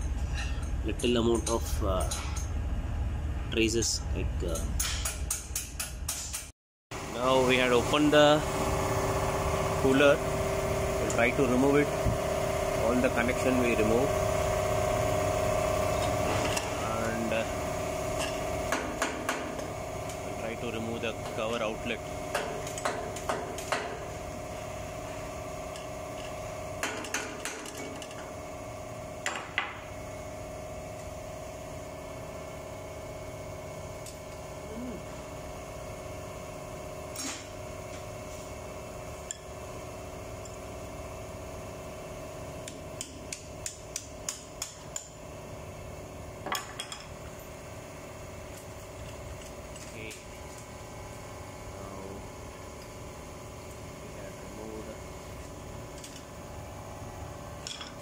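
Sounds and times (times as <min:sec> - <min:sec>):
machinery hum: 0:07.0 - 0:42.8.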